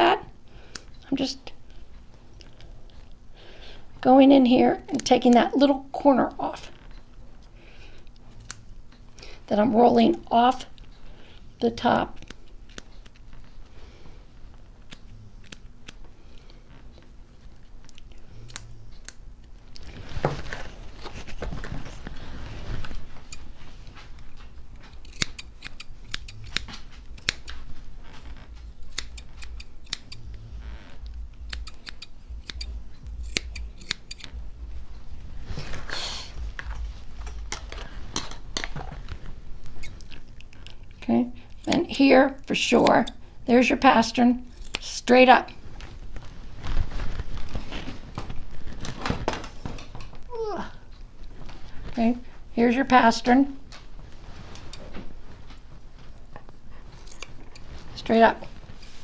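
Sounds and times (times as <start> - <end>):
scissors snipping hair: 4.9 - 5.5, 8.1 - 8.7, 12.1 - 13.3, 14.8 - 16.0, 17.8 - 19.6, 24.9 - 27.7, 28.8 - 30.2, 31.3 - 34.4, 39.8 - 40.8, 41.5 - 43.2, 44.5 - 45.0, 57.0 - 57.7
rustling of handling: 19.4 - 29.6, 45.5 - 52.4, 53.6 - 59.0.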